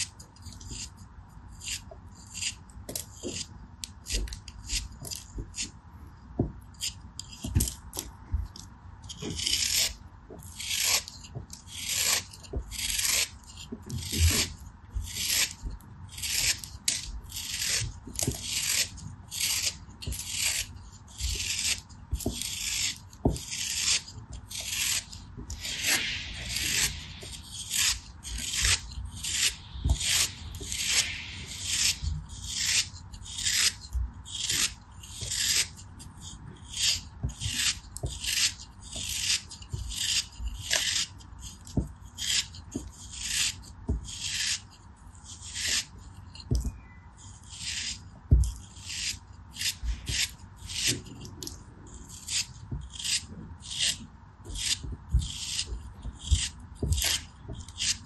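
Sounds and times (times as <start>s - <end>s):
knife scraping sand: 10.6s - 46.5s, 47.2s - 48.0s, 48.6s - 51.2s, 51.9s - 54.0s, 54.6s - 58.0s.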